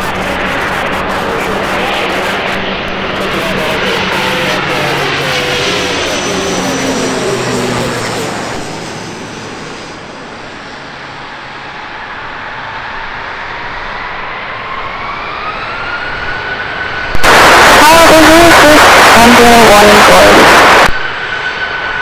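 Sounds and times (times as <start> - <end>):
turboprop plane passing overhead: 0.0 - 17.2, 19.1 - 22.0
engine whine climbing in pitch: 0.0 - 22.0.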